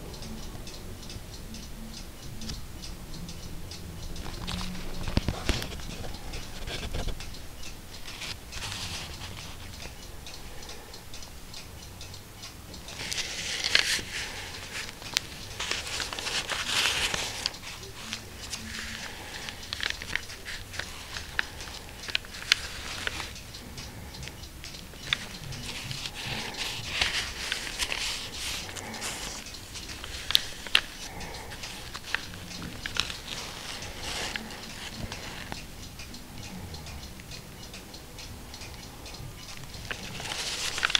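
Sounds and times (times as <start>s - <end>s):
small clicks and ticks: 0.0s - 40.9s
dry pages rustling and crackling: 4.3s - 7.2s, 8.0s - 9.6s, 12.9s - 23.3s, 25.1s - 35.6s, 39.9s - 40.9s.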